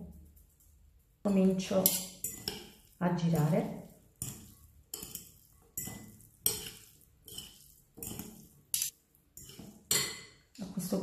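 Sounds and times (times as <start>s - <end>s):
utensils clinking against glass bowl: 1.8s - 10.4s.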